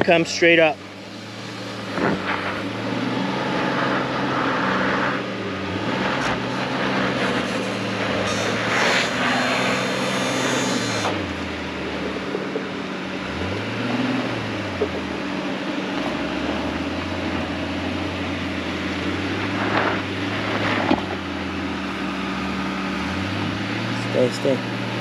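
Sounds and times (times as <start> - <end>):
engine revving on climb: 0.0 - 25.0
rushing noise: 0.9 - 11.3.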